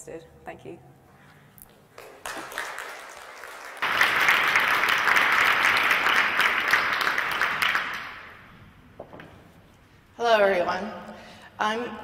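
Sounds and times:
audience applauding: 0:02.0 - 0:08.5.

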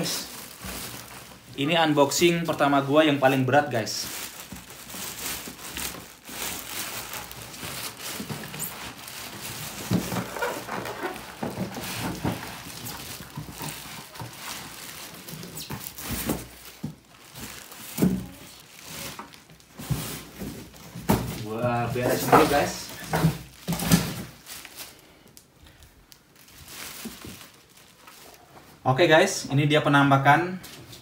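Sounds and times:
plastic wrapping crinkling: 0:00.0 - 0:29.3
cardboard box scraping: 0:07.5 - 0:14.5.

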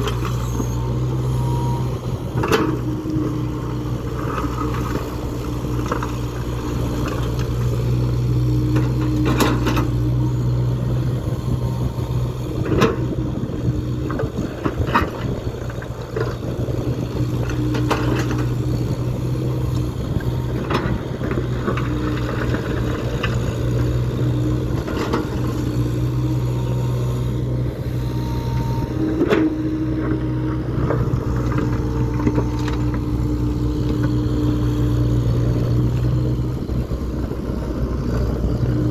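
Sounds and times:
excavator diesel engine running: 0:00.0 - 0:38.9.

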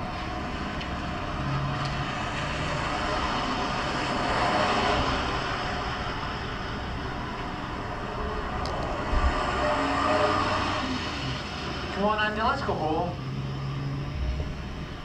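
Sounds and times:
car rushing past: 0:01.0 - 0:12.0.

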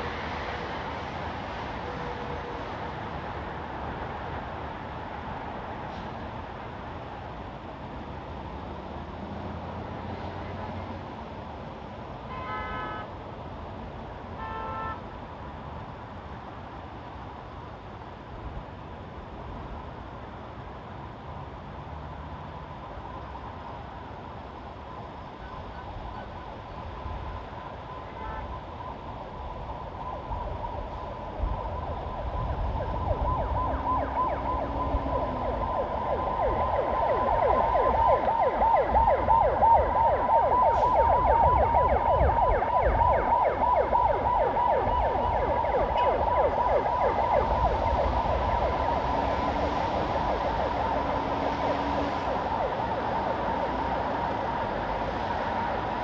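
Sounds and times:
road traffic rumble: 0:00.0 - 0:56.0
emergency siren yelping: 0:24.9 - 0:56.0.

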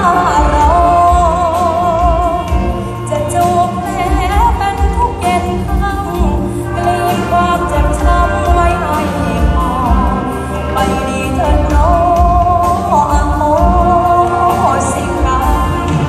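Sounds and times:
live band through speakers: 0:00.0 - 0:16.0
person singing with vibrato: 0:00.0 - 0:16.0.

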